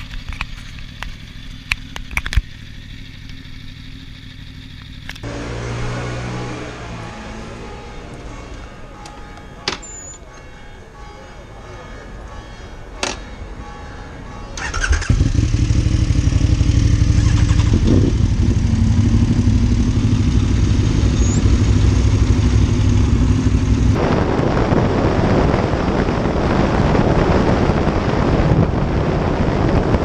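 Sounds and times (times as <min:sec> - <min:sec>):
motorcycle engine running: 0:00.0 - 0:07.6, 0:14.6 - 0:30.0
wind rushing over microphone: 0:15.1 - 0:20.2, 0:21.4 - 0:30.0.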